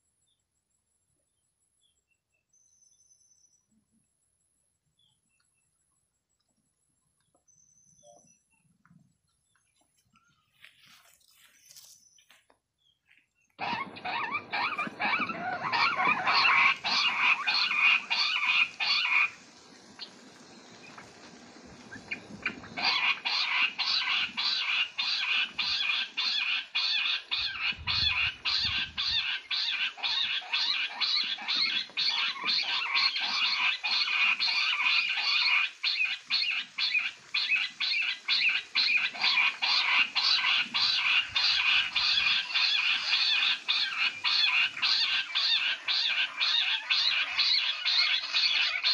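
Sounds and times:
quail chirping calls: 13.6 - 48.9.

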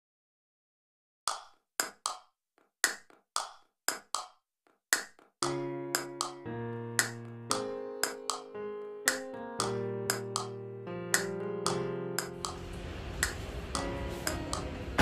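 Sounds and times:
clicking percussion hits: 5.4 - 14.7
sustained pitched chords: 9.6 - 15.0.

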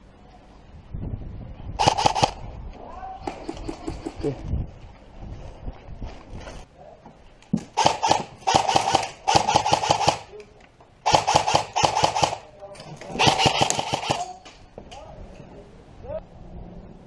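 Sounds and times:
airsoft rifle firing bursts: 1.8 - 2.4, 7.8 - 10.4, 11.0 - 12.5, 13.2 - 14.4.

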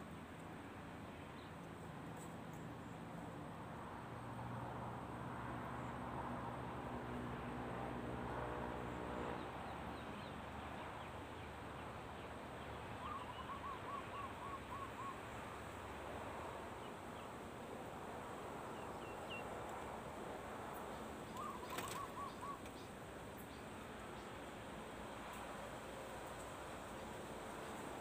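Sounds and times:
dove cooing: 21.4 - 22.7.

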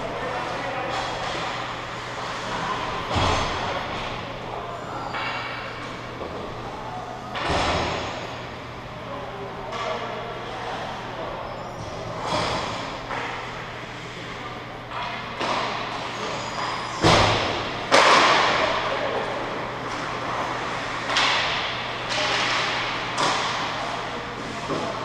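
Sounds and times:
pucks and sticks banging boards: 0.2 - 4.2, 14.9 - 25.0.

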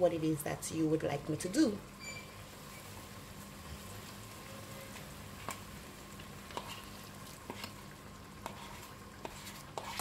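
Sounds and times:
coconut milk bubbling in a pan: 1.9 - 10.0
light clicks of scraping from bowl: 8.4 - 10.0.

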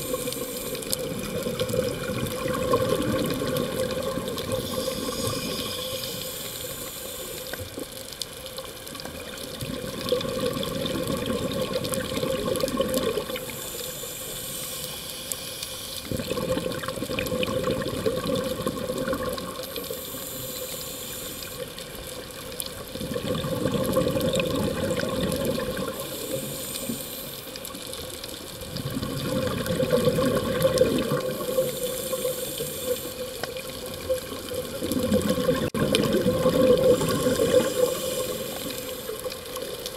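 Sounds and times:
bubbles rushing on exhale: 0.0 - 6.3, 9.0 - 13.6, 16.0 - 20.6, 22.7 - 27.0, 28.5 - 39.9
diver breathing through regulator: 4.5 - 7.6, 13.4 - 16.1, 25.9 - 27.5, 31.4 - 33.3, 36.8 - 39.2.

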